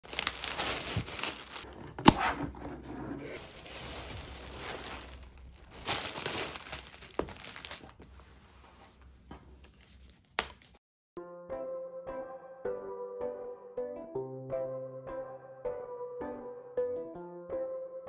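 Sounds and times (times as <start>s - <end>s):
plastic packaging crinkling: 0.0s - 2.1s, 3.3s - 8.2s.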